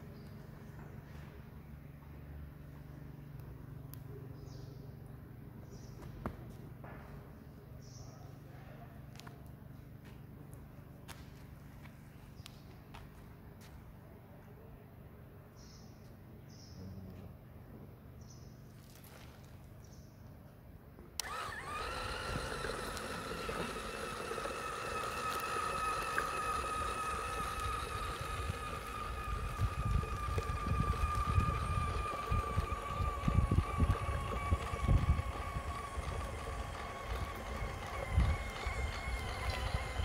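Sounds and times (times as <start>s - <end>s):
wheels rumbling on concrete: 21.1s - 40.0s
toy car motor whine: 21.2s - 40.0s.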